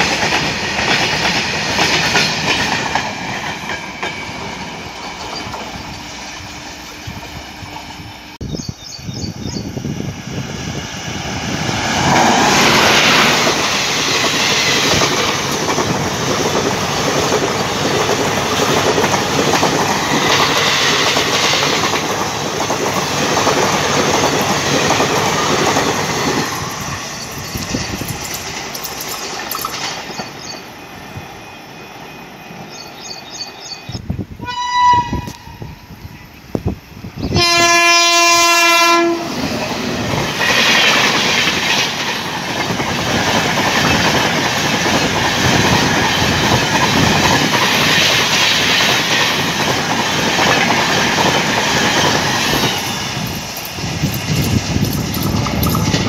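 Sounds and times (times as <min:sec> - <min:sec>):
train wheels clacking over rail joints: 0:00.0 - 0:06.1, 0:11.8 - 0:30.7, 0:39.4 - 0:56.0
locomotive air horn: 0:34.4 - 0:35.8, 0:37.3 - 0:39.4.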